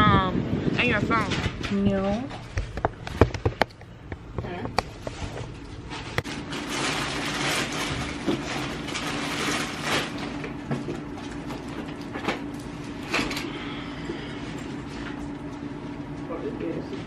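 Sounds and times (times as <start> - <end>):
steady low hum: 0.0 - 17.0
clothes and bags rustling: 4.9 - 13.4.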